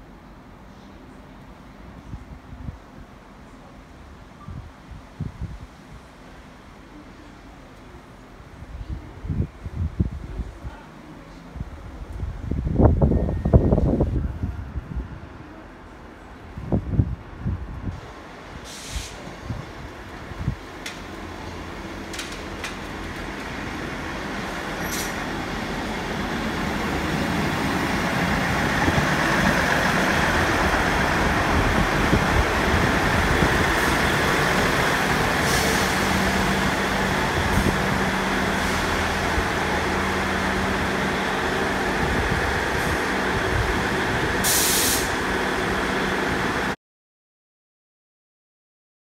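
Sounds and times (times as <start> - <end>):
diesel train engines running: 11.8 - 46.8
air hiss: 18.6 - 19.3, 44.4 - 45.2.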